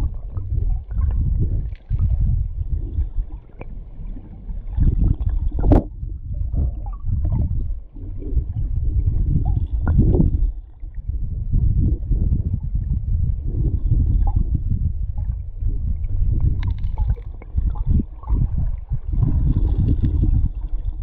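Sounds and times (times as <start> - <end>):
muffled underwater river rumble: 0.0 - 21.0
underwater knocks: 4.8 - 7.7, 9.4 - 10.5.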